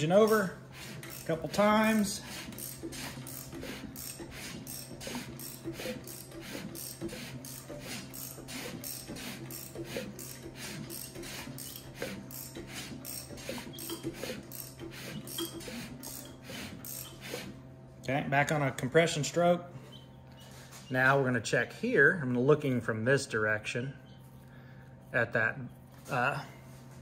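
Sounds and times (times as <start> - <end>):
ratchet wrench clicking: 0.2 - 17.3.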